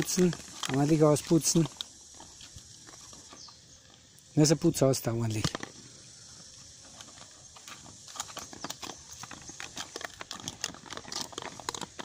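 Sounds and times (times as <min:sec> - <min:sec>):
dog licking plastic bowl: 0:07.0 - 0:12.0.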